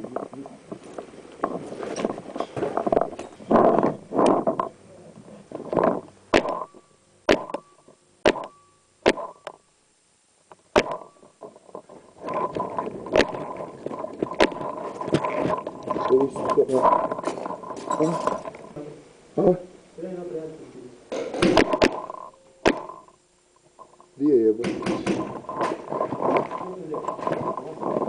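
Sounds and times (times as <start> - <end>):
paintball marker shots: 7.3 - 7.6, 8.2 - 9.6, 10.7 - 11.0.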